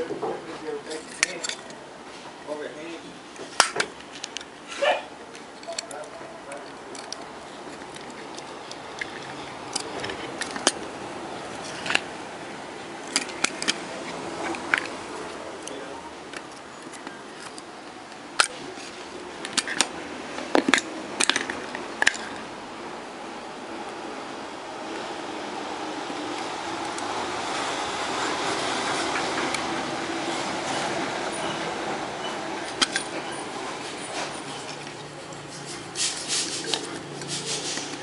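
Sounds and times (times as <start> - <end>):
small parts clicking and tapping: 5.3 - 10.9, 13.0 - 22.4, 32.7 - 33.2.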